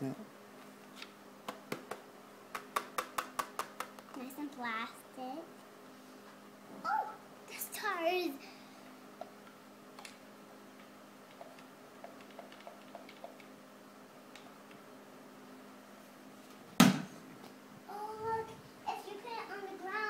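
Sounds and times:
loud thump: 16.8 - 17.1.

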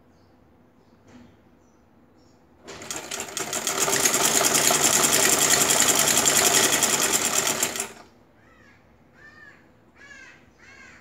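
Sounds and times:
sewing machine running: 2.6 - 8.1.

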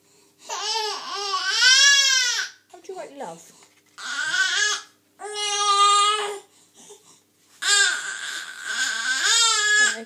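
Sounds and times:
baby crying: 0.5 - 2.6, 4.0 - 6.5, 7.6 - 10.0.

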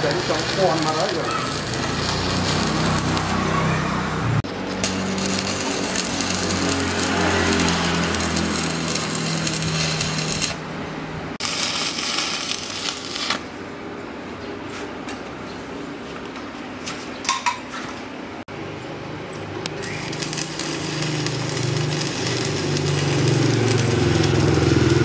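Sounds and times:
welding arc crackling: 0.0 - 13.6, 19.6 - 25.0.

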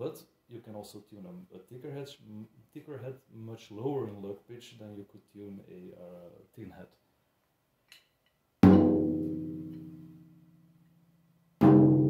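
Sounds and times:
tom drum hits: 8.6 - 9.7, 11.6 - 12.0.

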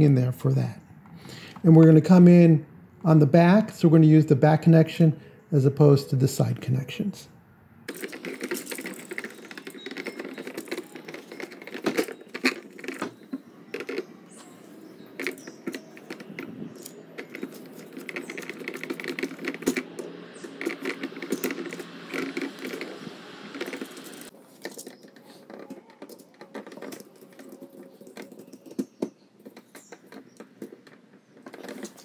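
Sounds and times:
screwdriver turning screws: 7.9 - 29.0
plastic and metal clicks: 7.9 - 32.0.

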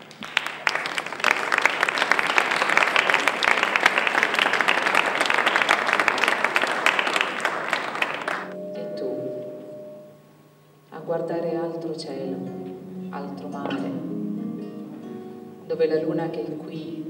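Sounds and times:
audience applauding: 0.0 - 8.6
sustained musical notes: 8.5 - 16.8.

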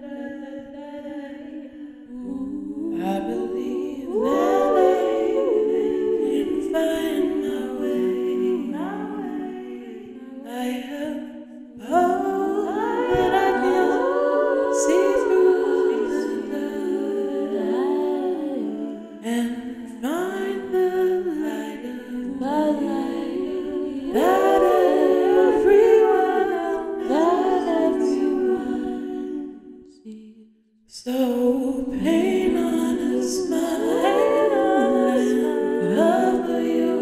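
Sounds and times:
voices humming in harmony: 2.2 - 10.4, 11.9 - 19.0, 22.4 - 29.6, 32.1 - 37.0.

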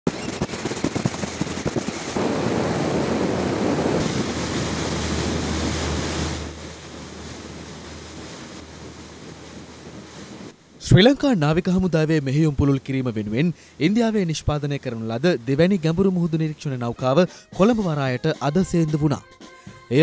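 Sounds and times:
gusty knocks: 0.1 - 2.8
wind buffeting the microphone: 0.1 - 10.8
rushing water: 1.2 - 19.0.

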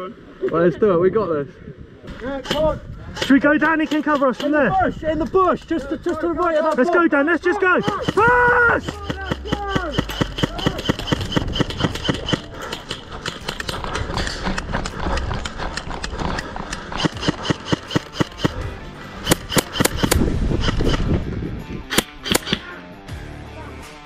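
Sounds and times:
sharp knocks: 7.8 - 18.6
background music: 16.9 - 24.0.

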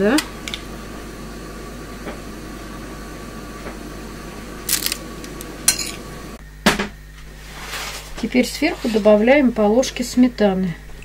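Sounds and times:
faint steady hum: 0.0 - 11.0
foil rustling: 4.6 - 5.4.

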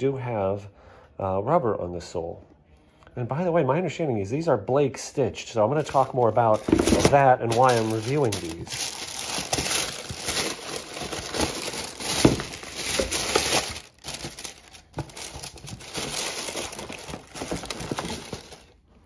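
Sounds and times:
tissue paper rustling: 5.8 - 18.8.

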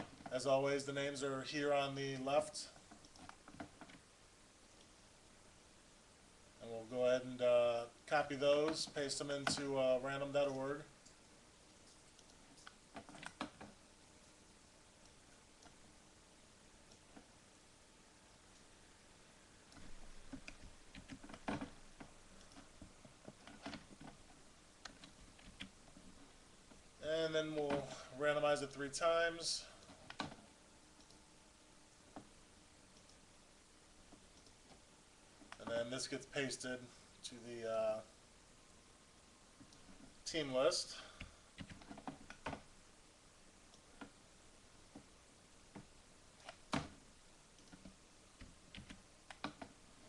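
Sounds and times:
computer mouse clicks: 2.2 - 4.0, 11.0 - 13.8, 31.0 - 31.2, 32.9 - 33.2, 34.2 - 34.8, 47.6 - 49.8.

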